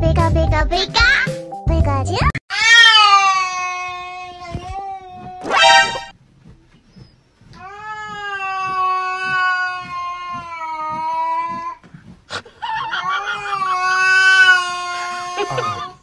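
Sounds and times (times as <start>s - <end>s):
cat yowling: 2.5s - 4.5s, 12.7s - 15.8s.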